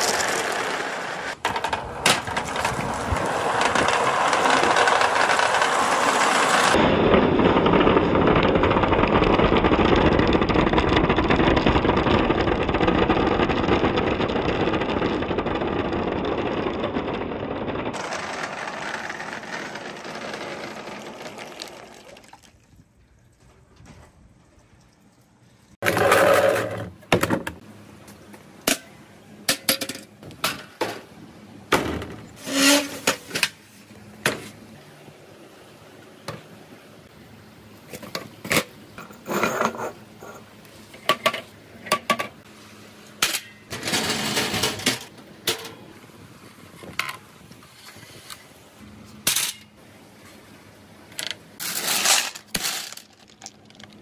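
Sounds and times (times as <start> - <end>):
balls clacking on hard surfaces: 0.0 - 6.0
marbles rolling down wooden slope: 0.0 - 22.3, 51.2 - 54.0.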